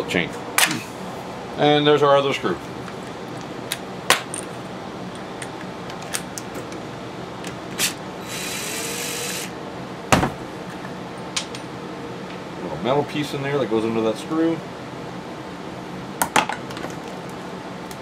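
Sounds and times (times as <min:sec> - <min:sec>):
cordless drill spinning: 0:07.8 - 0:09.5.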